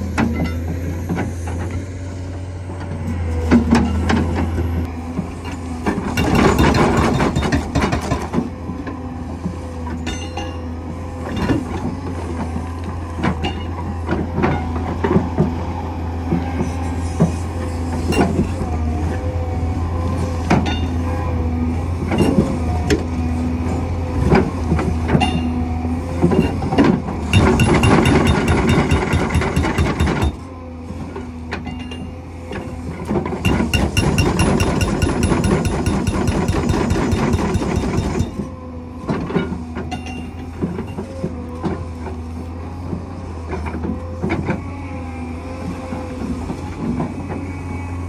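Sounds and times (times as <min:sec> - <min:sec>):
excavator diesel engine under load: 0:00.0 - 0:10.0, 0:10.6 - 0:48.0
knocks and clanks: 0:05.8 - 0:08.4, 0:26.4 - 0:30.4, 0:31.6 - 0:38.5
hydraulic hammer blows: 0:27.3 - 0:30.5, 0:33.4 - 0:38.6.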